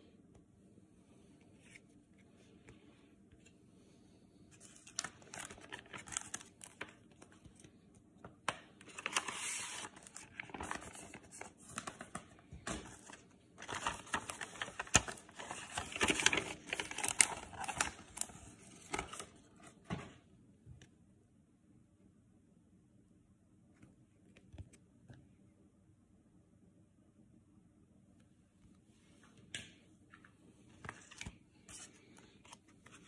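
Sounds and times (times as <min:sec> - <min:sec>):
plastic card sleeves crinkling: 0:04.5 - 0:07.7, 0:08.8 - 0:19.4.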